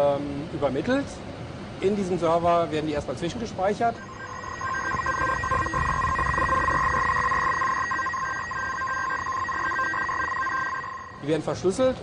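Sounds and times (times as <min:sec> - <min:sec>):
cooling fans whirring: 0:00.0 - 0:12.0
intermittent electronic tone: 0:03.9 - 0:11.5
steady electronic alarm tone: 0:04.0 - 0:11.4.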